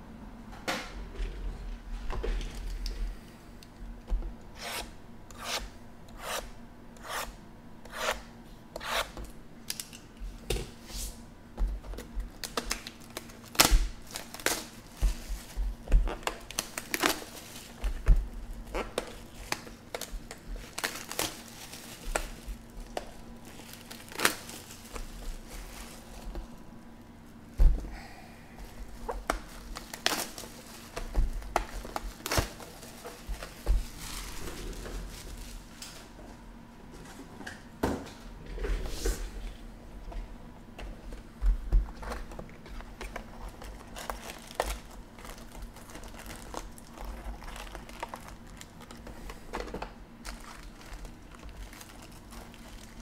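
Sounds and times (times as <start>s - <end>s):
foil packs crinkling: 12.3s - 26.6s, 28.6s - 36.1s, 42.0s - 53.0s.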